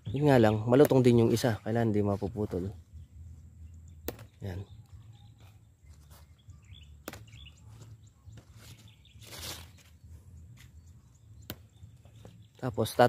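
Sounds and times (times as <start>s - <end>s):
leaves rustling by hand: 7.1s - 10.8s
brittle leaves snapping: 9.2s - 9.9s.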